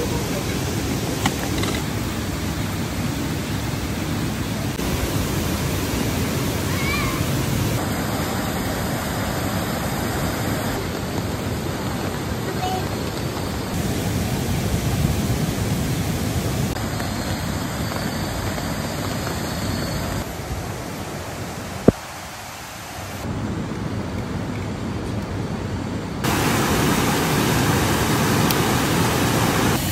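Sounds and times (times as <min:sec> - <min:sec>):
river rushing over rocks: 0:26.2 - 0:29.9.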